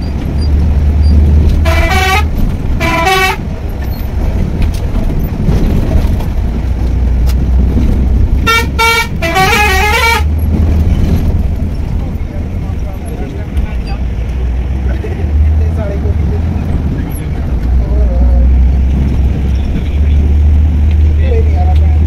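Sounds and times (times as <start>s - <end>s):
bus engine rumbling: 0.0s - 22.0s
bus horn tooting: 1.4s - 3.6s, 8.4s - 10.4s.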